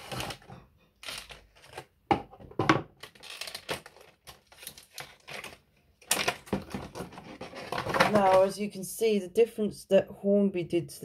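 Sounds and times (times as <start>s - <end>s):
plastic packaging crackling: 0.0s - 1.9s, 3.0s - 8.4s.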